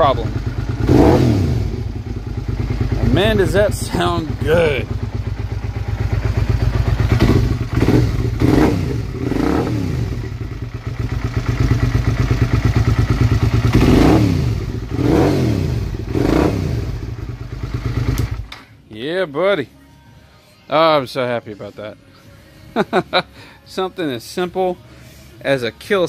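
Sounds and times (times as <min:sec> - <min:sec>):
motorcycle engine revving: 0:00.0 - 0:18.5.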